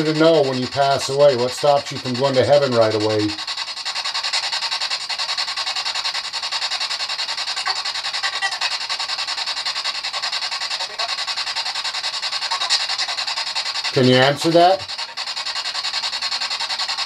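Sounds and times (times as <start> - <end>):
pulsing radio static hiss: 0.0 - 17.0
faint broadcast blips: 7.6 - 8.9, 10.0 - 11.2, 12.5 - 15.4.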